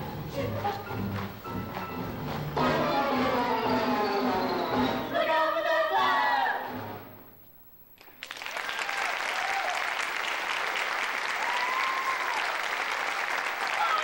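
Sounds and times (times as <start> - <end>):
audience applause: 8.0 - 14.0.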